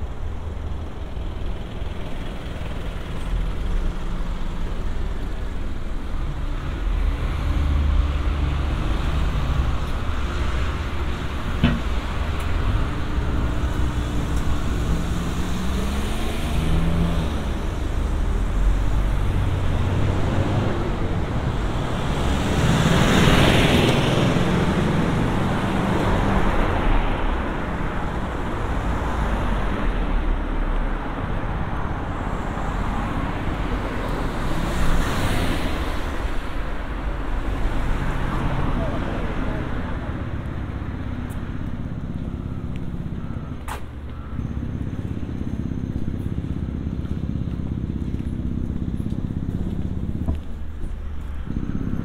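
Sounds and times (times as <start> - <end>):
low rumble of traffic: 0.0 - 52.0
vehicles passing close by: 0.0 - 52.0.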